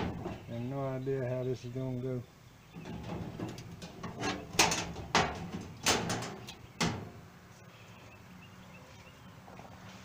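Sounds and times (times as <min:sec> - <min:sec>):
knocks and clatters on metal stove: 0:00.0 - 0:00.5, 0:02.8 - 0:07.2.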